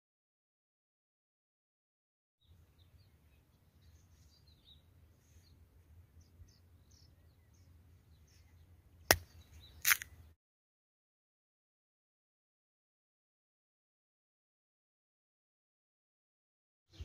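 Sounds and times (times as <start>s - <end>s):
faint bird chirps: 2.4s - 10.4s
cucumber snapping: 9.1s - 10.1s.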